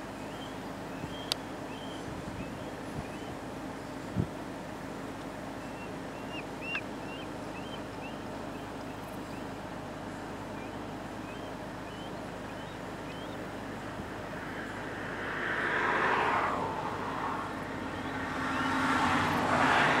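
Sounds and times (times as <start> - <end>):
outdoor background hiss: 0.0 - 20.0.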